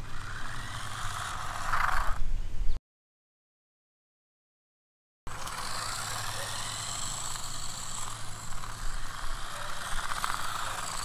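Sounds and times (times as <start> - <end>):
toy car electric motor whirring: 0.0 - 2.3, 5.3 - 11.0.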